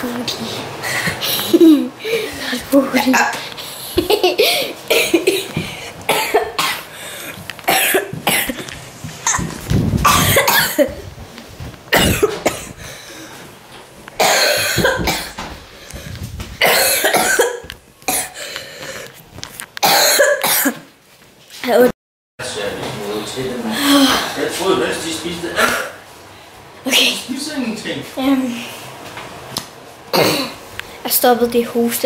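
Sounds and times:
boy coughing: 0:04.0 - 0:06.9, 0:07.7 - 0:09.5, 0:10.1 - 0:11.0, 0:11.9 - 0:12.8, 0:14.2 - 0:15.4, 0:16.6 - 0:18.4, 0:19.8 - 0:20.8, 0:30.1 - 0:30.6.

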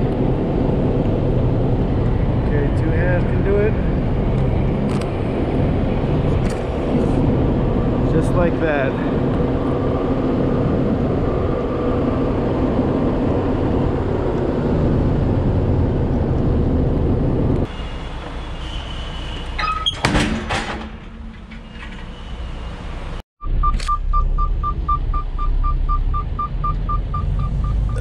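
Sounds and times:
knocks and rattles: 0:19.9 - 0:22.2.

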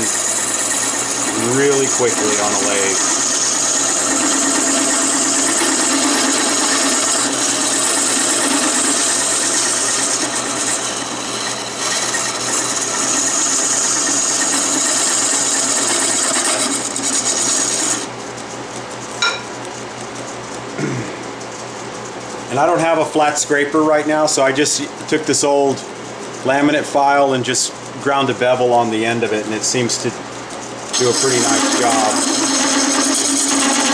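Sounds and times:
wood lathe humming: 0:00.0 - 0:18.2, 0:26.4 - 0:33.9
turning tool scraping wood: 0:00.0 - 0:18.9, 0:22.4 - 0:33.9
short metallic clink: 0:19.2 - 0:19.5.

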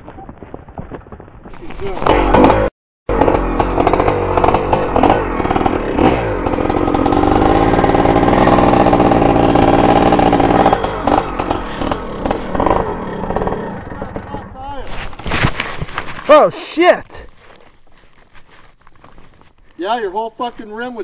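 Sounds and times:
dirt bike engine revving: 0:02.0 - 0:14.7.

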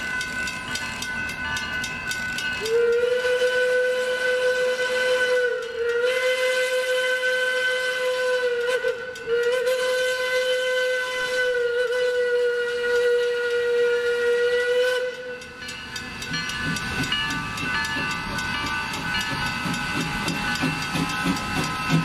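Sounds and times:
steam whistle blasts: 0:02.6 - 0:15.6.

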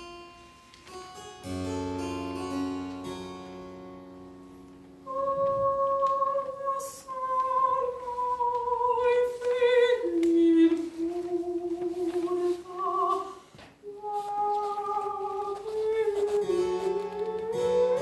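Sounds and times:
soprano singing long notes: 0:05.0 - 0:18.0.

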